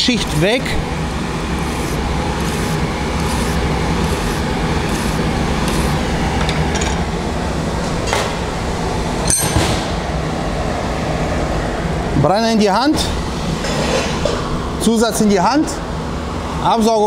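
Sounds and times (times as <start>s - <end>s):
steady low hum: 0.0s - 17.0s
wire brush scrubbing metal: 1.5s - 6.1s.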